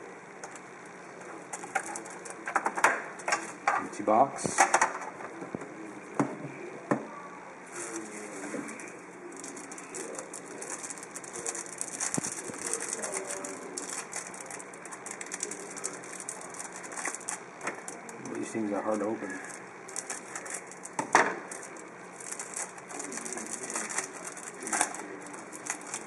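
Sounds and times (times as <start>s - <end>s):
plastic wrapper crinkling: 1.5s - 2.6s, 7.7s - 26.0s.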